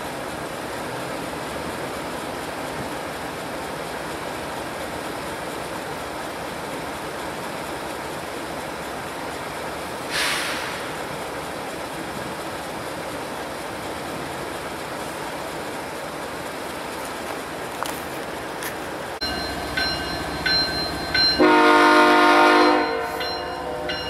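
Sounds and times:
freight train moving slowly: 0.0s - 24.0s
short sharp hiss: 10.1s - 11.0s.

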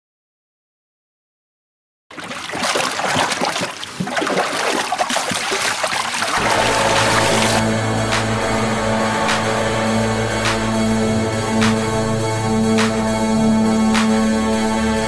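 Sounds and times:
water splashing in a tank: 2.1s - 7.6s
music: 6.4s - 15.0s.

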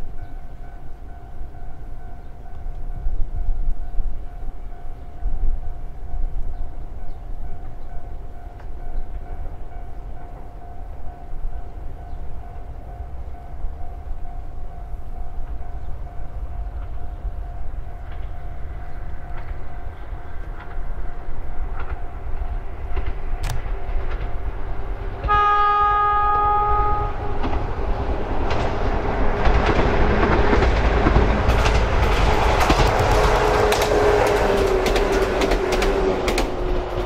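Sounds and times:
rail noise: 0.0s - 37.0s
wheels clicking over rail joints: 15.4s - 25.6s, 27.2s - 37.0s
train horn: 25.2s - 28.0s, 31.6s - 37.0s.

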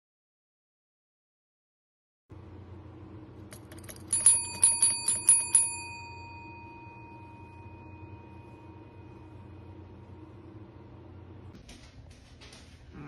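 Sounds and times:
service bell dinging: 3.5s - 10.0s.

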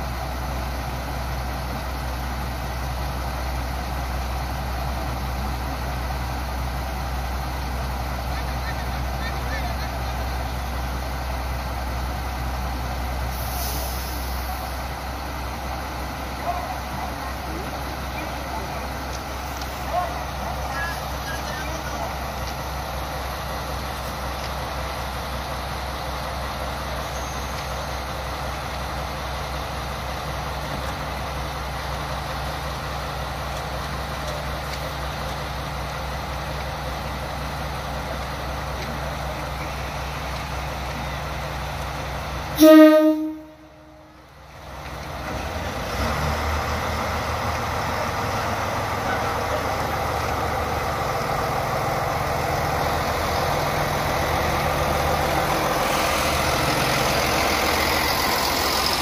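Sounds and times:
diesel train engine: 0.0s - 59.0s
train horn blast: 42.6s - 44.2s.

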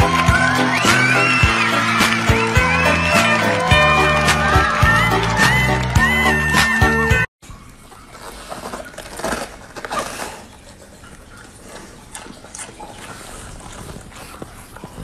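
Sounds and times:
dog chewing cabbage: 7.8s - 15.0s.

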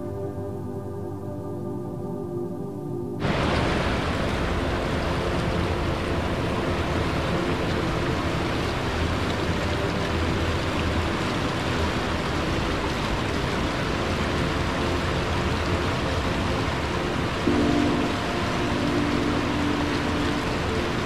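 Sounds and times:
river rushing over weir: 3.2s - 21.0s.

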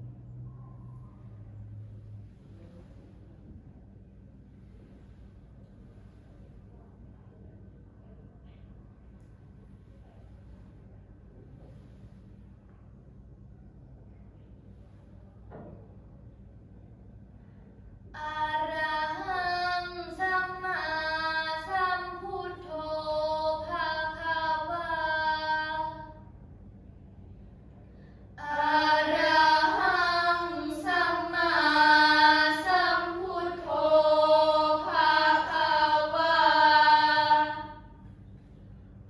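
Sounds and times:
girls chanting a prayer: 18.2s - 26.3s, 28.4s - 38.0s.

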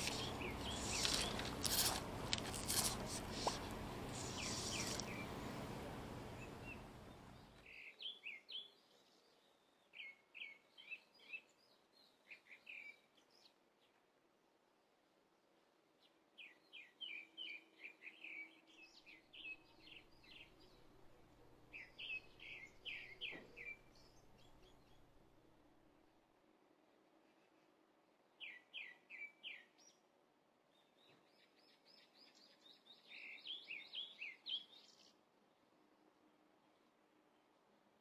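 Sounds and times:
bird chirping: 0.0s - 13.9s, 16.0s - 25.3s, 28.4s - 30.0s, 30.7s - 35.2s
faint outdoor hiss: 0.0s - 38.0s.

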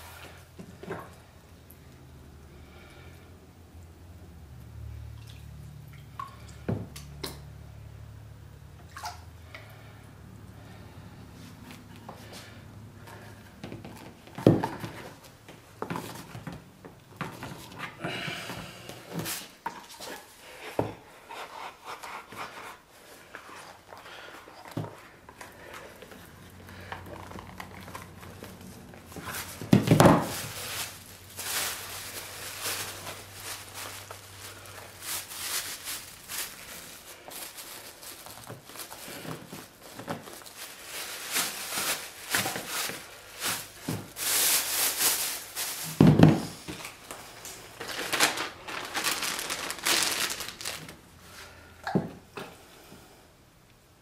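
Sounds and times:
plastic wrapping crinkling: 23.2s - 51.1s.

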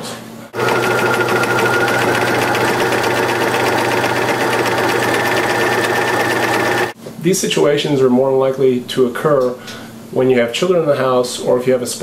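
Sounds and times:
sewing machine stitching: 0.6s - 7.0s.

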